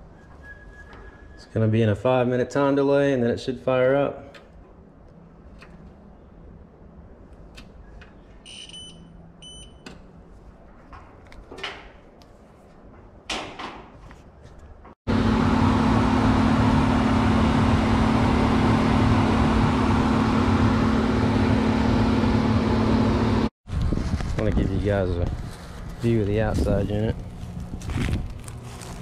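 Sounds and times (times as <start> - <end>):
short electronic beeps: 8.4 - 9.8
constant low hum: 14.2 - 29.0
furnace blower rushing air: 15.1 - 23.5.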